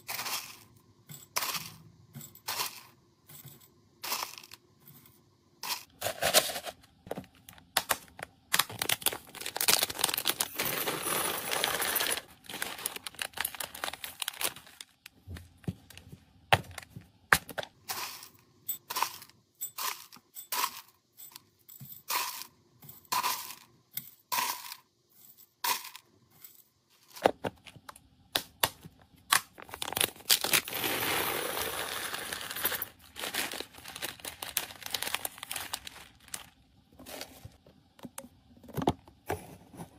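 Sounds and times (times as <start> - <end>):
kibble pouring into bag: 8.8 - 14.8, 29.9 - 36.5.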